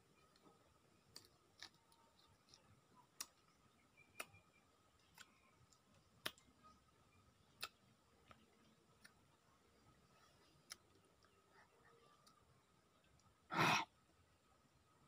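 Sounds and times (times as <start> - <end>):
chewing: 0.2 - 6.8
mouth clicks and smacks: 7.5 - 8.4.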